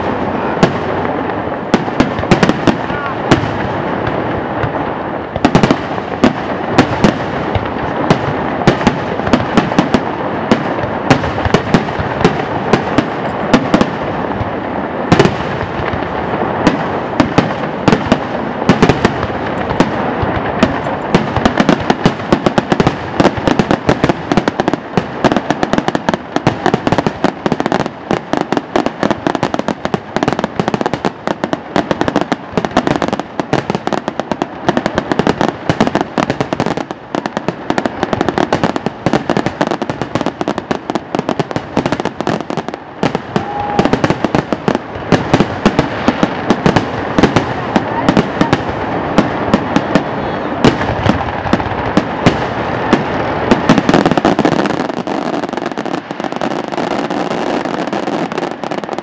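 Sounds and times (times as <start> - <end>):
firework bursts and bangs: 0.0 - 59.0
firework crackles: 0.0 - 59.0.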